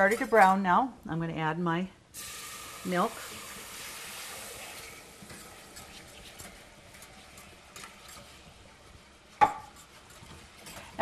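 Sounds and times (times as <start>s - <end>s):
roux sizzling in a saucepan: 2.1s - 11.0s
milk pouring: 2.2s - 6.2s.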